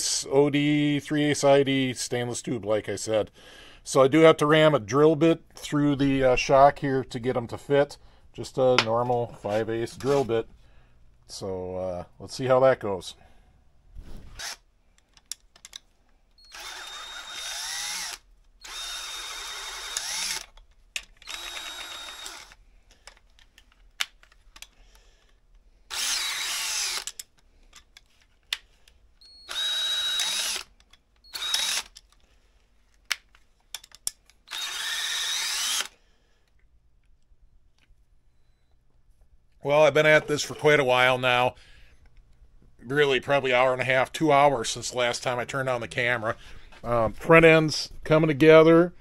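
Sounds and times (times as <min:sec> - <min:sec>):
cordless drill drilling through rubber: 0:14.3 - 0:14.7, 0:16.4 - 0:20.6, 0:21.2 - 0:22.6, 0:25.9 - 0:27.3, 0:29.2 - 0:32.0, 0:34.5 - 0:36.0
clicks and handling noises: 0:14.4 - 0:16.2, 0:22.8 - 0:25.6, 0:27.0 - 0:29.3, 0:30.7 - 0:34.5, 0:36.4 - 0:38.1.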